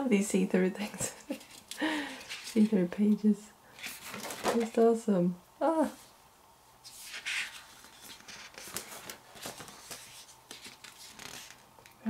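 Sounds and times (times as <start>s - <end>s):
book pages turning: 1.3s - 2.8s, 3.8s - 4.8s, 6.8s - 12.0s.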